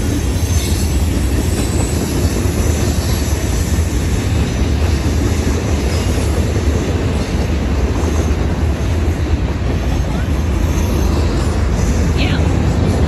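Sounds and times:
freight train wheels on rails: 0.0s - 13.0s.

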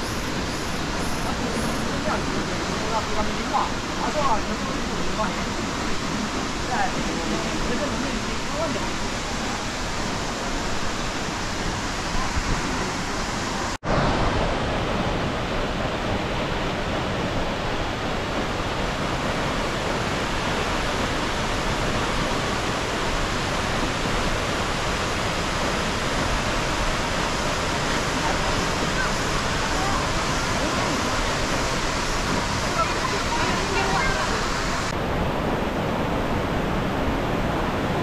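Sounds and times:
waterfall roaring: 0.0s - 38.0s.

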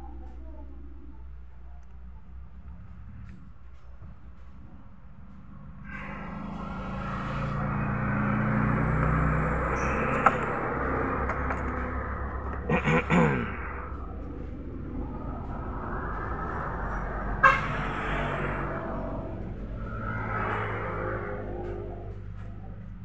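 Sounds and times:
vehicle engine passing: 5.2s - 23.0s.

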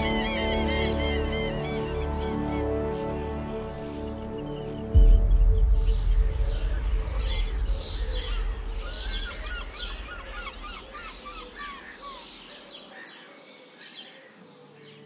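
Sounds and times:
music: 0.0s - 11.0s
small birds chirping: 0.0s - 15.0s.

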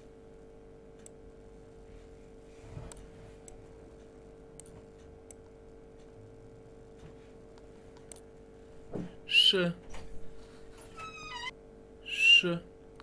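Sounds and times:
faint hum: 0.0s - 13.0s
computer mouse clicks: 7.9s - 8.3s.

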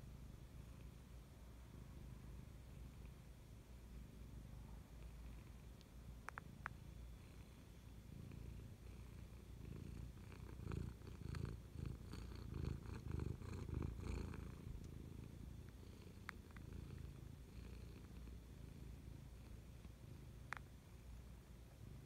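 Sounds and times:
cat purring: 0.0s - 22.0s
faint clicks: 5.0s - 6.8s, 19.8s - 20.7s.

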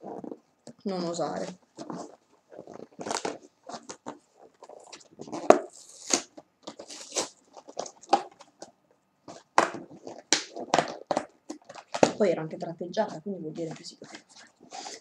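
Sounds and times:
cardboard box being torn open: 4.7s - 8.4s.

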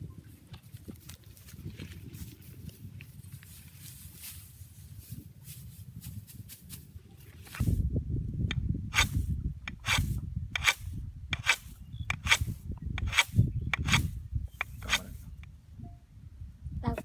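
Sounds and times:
scraping strokes: 7.4s - 7.8s, 8.9s - 15.4s.

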